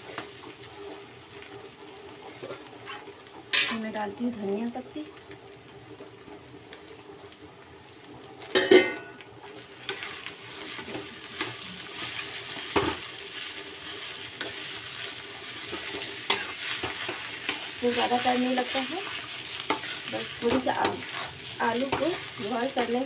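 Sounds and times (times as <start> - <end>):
potato sizzling: 0.0 - 23.0
metal spatula scraping pan: 9.8 - 23.0.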